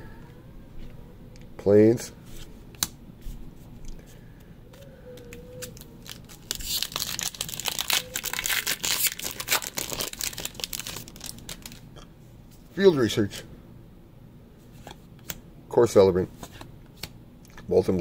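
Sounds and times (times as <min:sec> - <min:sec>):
foil wrapper tearing and crinkling: 0:05.6 - 0:11.9.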